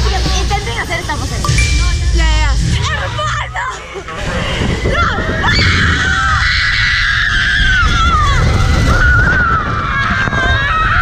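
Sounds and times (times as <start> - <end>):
wind noise on microphone: 4.0 - 11.0
rushing water rumble: 4.1 - 11.0
riders screaming: 4.8 - 11.0.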